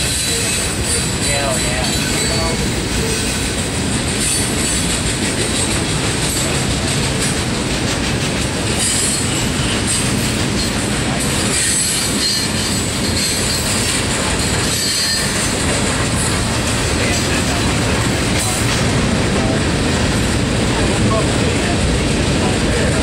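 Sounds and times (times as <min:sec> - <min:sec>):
train wheels clattering on rails: 0:00.0 - 0:23.0
high-pitched wheel squeal: 0:11.6 - 0:13.9, 0:14.6 - 0:15.5.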